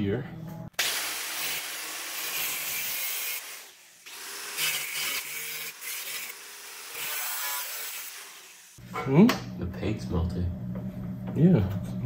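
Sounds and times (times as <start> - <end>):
angle grinder cutting sheet steel: 0.8 - 8.8.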